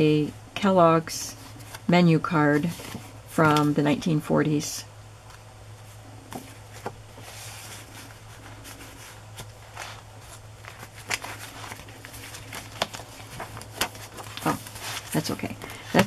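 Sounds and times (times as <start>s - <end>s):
steady low hum: 0.0s - 16.0s
paper rustling: 2.5s - 3.8s, 5.3s - 16.0s.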